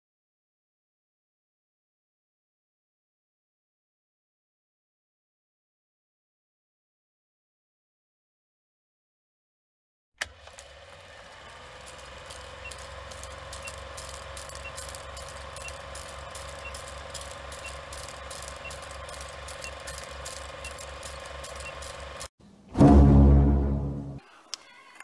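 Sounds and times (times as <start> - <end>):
film projector clatter: 10.2 - 22.3.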